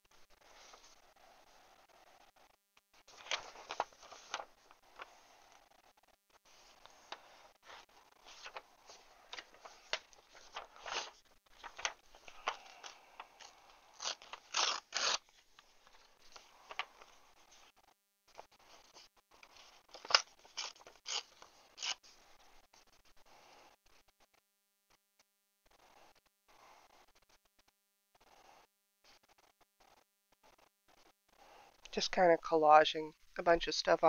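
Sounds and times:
paper crinkling and crackling: 2.9s - 22.9s.

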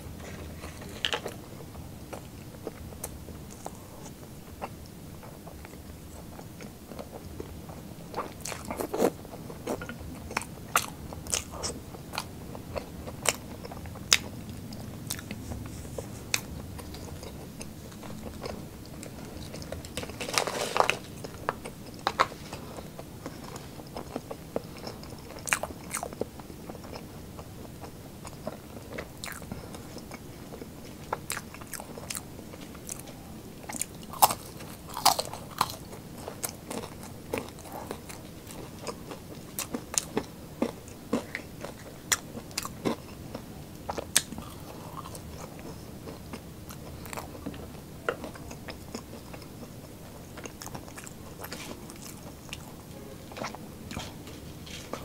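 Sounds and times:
person crunching food: 8.1s - 27.0s, 28.2s - 30.1s, 31.0s - 43.2s, 43.9s - 49.7s.

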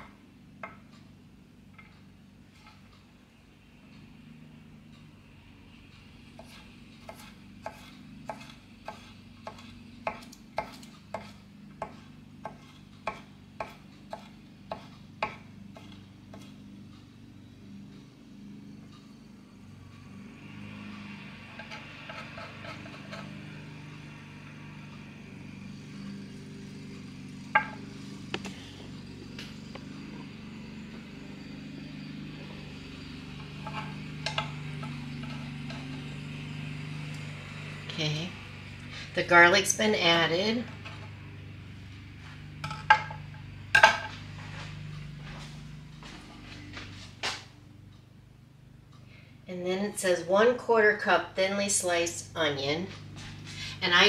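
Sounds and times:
knife scraping cutting board: 6.4s - 16.5s, 21.6s - 23.4s
knife chopping on wooden board: 6.4s - 16.6s.

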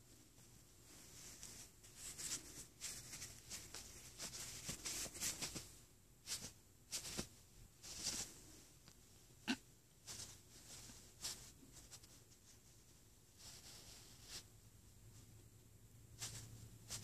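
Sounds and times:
cloth rustling and scuffing: 0.0s - 8.8s, 10.0s - 14.5s.

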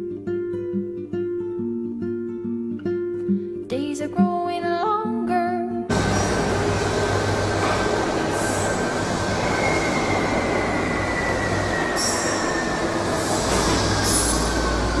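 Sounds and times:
subway train rumbling: 5.9s - 15.0s
wheels squealing: 5.9s - 15.0s.

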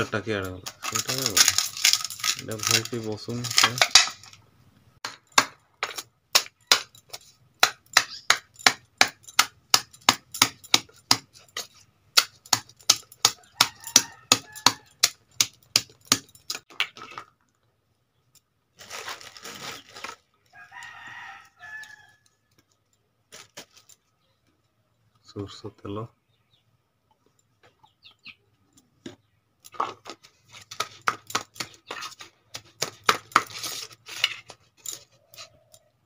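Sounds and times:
metal pestle pounding on steel: 7.6s - 11.3s, 12.2s - 16.3s
rooster crowing: 13.4s - 15.0s, 20.5s - 22.3s.

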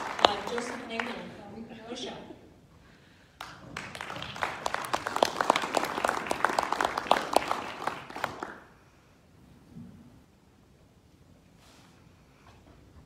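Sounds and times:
audience applauding: 0.0s - 1.4s, 3.4s - 8.8s.

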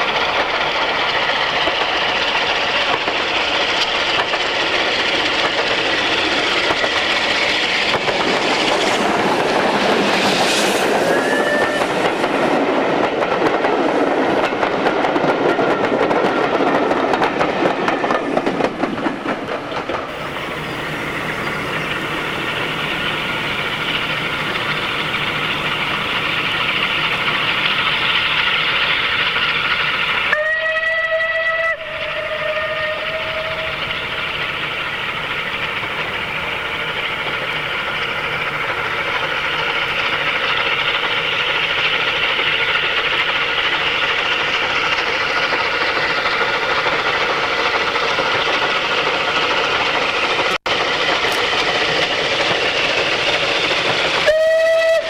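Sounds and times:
steam locomotive exhaust and running: 0.0s - 55.0s
steam locomotive whistle: 10.8s - 12.1s, 29.9s - 34.4s, 54.2s - 55.0s.

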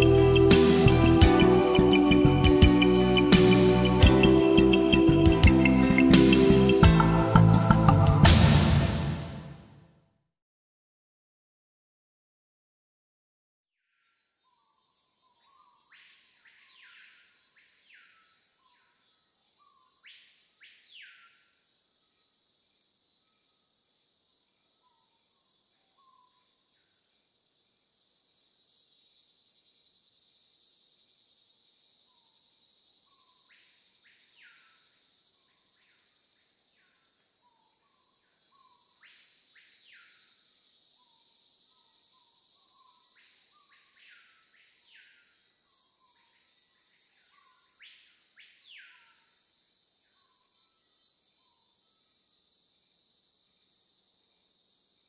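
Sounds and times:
high-pitched insect trilling: 0.0s - 7.8s.

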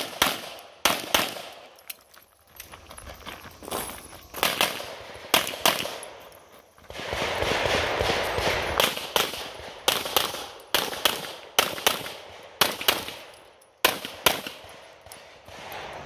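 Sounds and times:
pistol shots: 0.0s - 1.8s, 4.4s - 6.2s, 6.9s - 16.0s.

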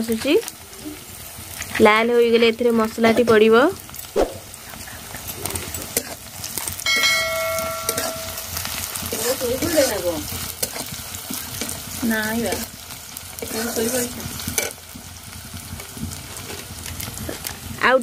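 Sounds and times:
onions sizzling in oil: 0.0s - 18.0s
spatula scraping pan: 5.5s - 12.7s, 13.4s - 14.8s.

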